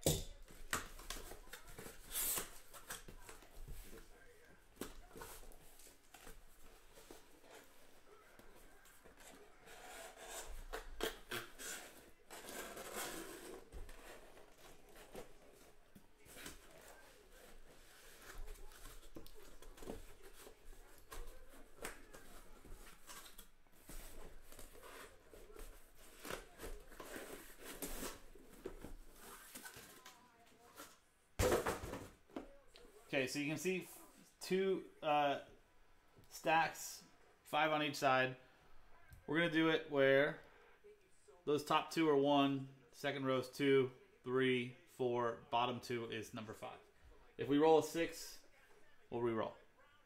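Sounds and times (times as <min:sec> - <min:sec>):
cardboard scraping and tearing: 0:09.7 - 0:15.4.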